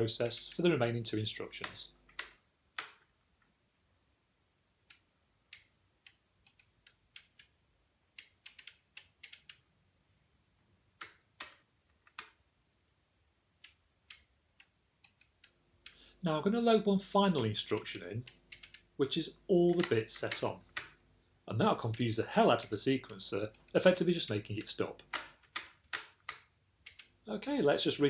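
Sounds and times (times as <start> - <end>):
pushbuttons and switches clicking: 0.0 - 0.7, 1.6 - 3.1, 17.3 - 18.9, 19.7 - 21.0, 21.8 - 27.2.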